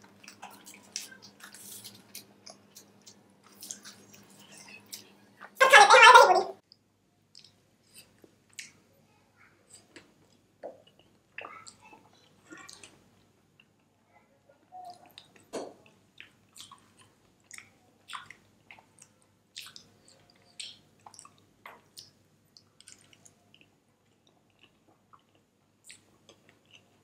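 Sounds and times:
chewing noodles: 0.0 - 5.1, 14.9 - 27.0.

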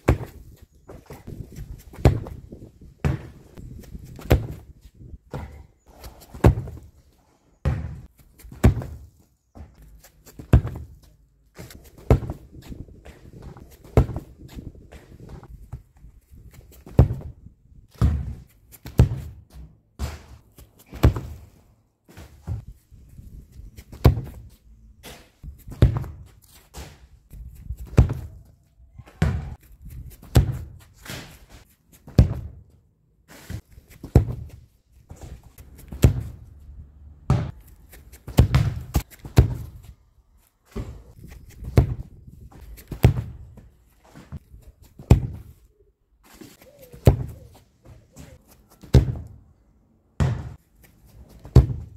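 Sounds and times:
football being kicked: 1.9 - 3.4, 7.6 - 9.0, 10.4 - 11.0, 18.0 - 19.4, 25.0 - 27.0, 27.8 - 28.4, 29.2 - 29.6, 30.3 - 31.3, 35.9 - 36.5, 37.3 - 37.6, 38.2 - 39.9, 41.6 - 42.1, 42.8 - 43.5, 45.0 - 45.5, 47.0 - 47.4, 48.9 - 49.3, 50.2 - 50.6, 51.5 - 51.9.

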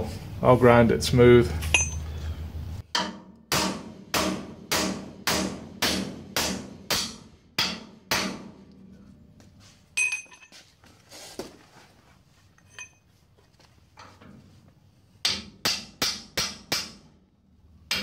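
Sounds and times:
hammer striking steel: 1.7 - 2.1, 2.9 - 8.5, 15.2 - 17.0
light metal knocks and clinks: 1.7 - 2.1, 10.0 - 10.7, 12.5 - 13.1.

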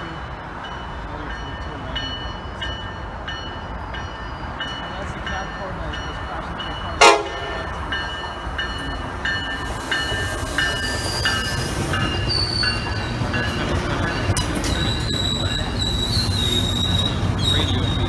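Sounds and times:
train rumble: 0.0 - 18.0
train horn blast: 7.0 - 7.7
high brake squeal: 12.2 - 13.1, 14.6 - 18.0.

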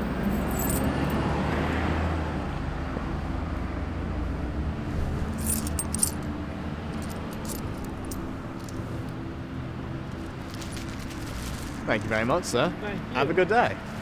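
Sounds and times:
coins clinking and jingling: 0.2 - 1.2, 5.3 - 6.3, 6.9 - 8.8.

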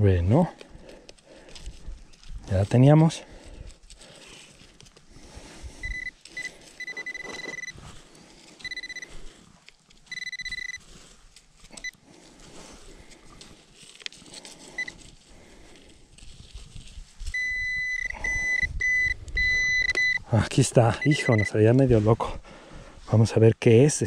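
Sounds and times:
hands scraping dry dirt: 0.0 - 18.4, 20.4 - 22.4
metal detector beeping: 5.8 - 7.9, 8.6 - 9.2, 10.1 - 10.9, 11.7 - 12.0, 14.7 - 15.0, 17.3 - 21.7.

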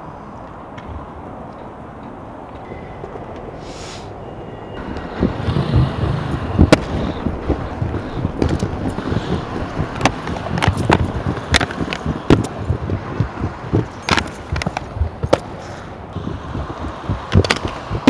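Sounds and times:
skate wheels rolling on stone: 4.8 - 18.0
sharp clacks: 4.9 - 15.6, 16.2 - 18.0.

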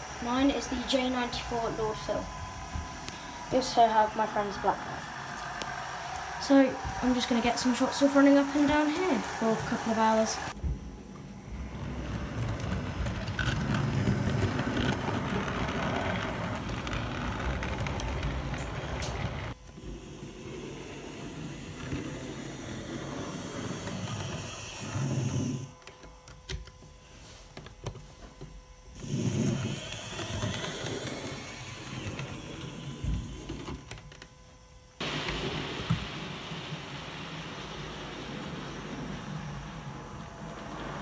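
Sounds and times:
model train motor hum: 0.0 - 10.6, 11.6 - 25.8, 29.0 - 34.3
wheels rattling over rails: 11.6 - 19.6.

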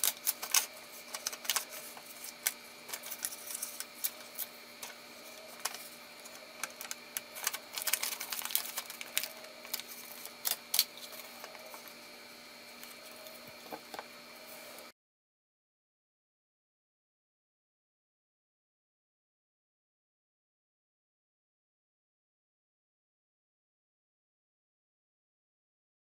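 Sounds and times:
paper rustling: 0.0 - 11.9
faint hum: 0.0 - 14.9.

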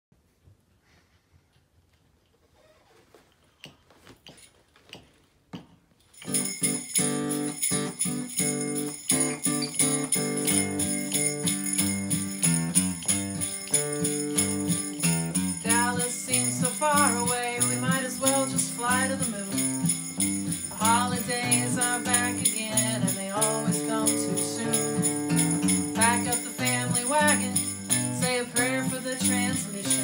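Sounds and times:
sleigh bell jingling: 6.1 - 30.0
acoustic guitar strumming: 6.2 - 30.0
person singing: 15.6 - 25.2, 25.8 - 30.0.

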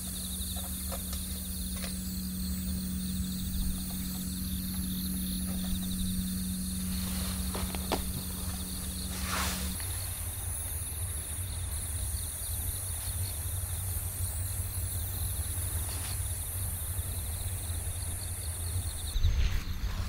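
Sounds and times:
insects chirping: 0.0 - 20.0
low rumble: 19.0 - 20.0.

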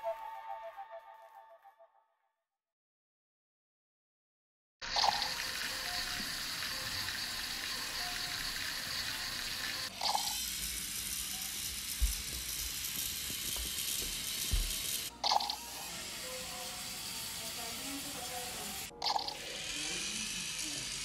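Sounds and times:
toy car motor whirring: 4.8 - 21.0.

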